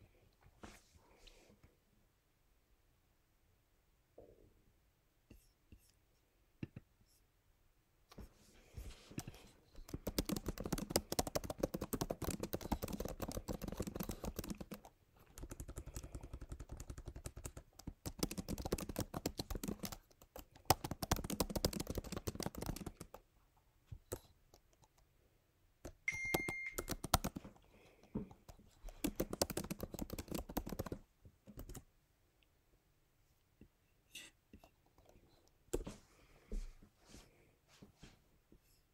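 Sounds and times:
computer keyboard typing: 9.2 - 23.2, 25.8 - 27.6, 28.5 - 31.8
brief high beep: 26.1 - 26.8.

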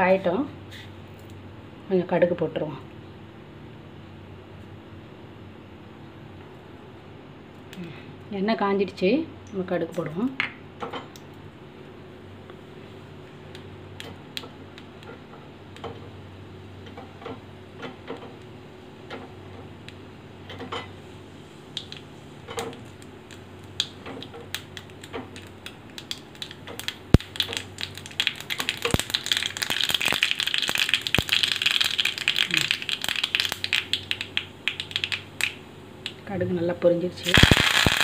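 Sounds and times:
seeds popping in hot oil: 13.3 - 16.2, 21.6 - 36.4, 37.2 - 38.0.

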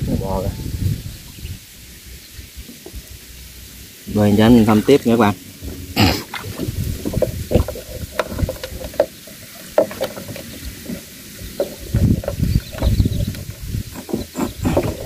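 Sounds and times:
paddle splashing water: 4.4 - 15.0.

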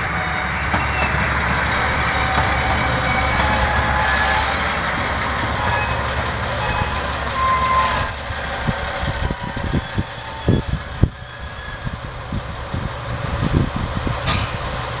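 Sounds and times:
train rolling thuds and rumble: 0.0 - 15.0
train brakes squealing: 0.3 - 4.7, 5.5 - 12.0
sharp clunk: 14.2 - 14.6.

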